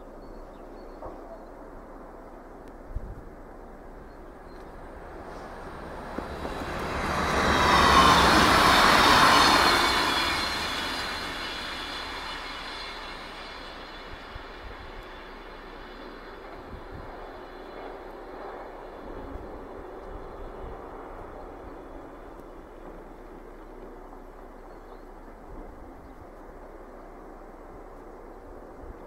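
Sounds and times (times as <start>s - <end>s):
passenger train passing at speed: 0.0s - 29.0s
thin high whine: 4.6s - 19.6s.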